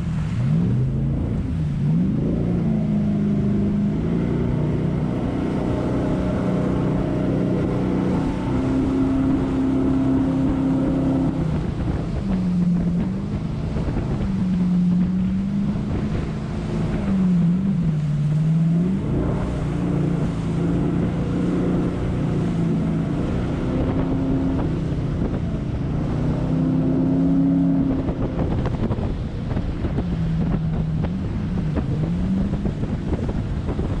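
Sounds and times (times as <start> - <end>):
boat engine running: 0.0 - 34.0
wind buffeting microphone: 0.0 - 34.0.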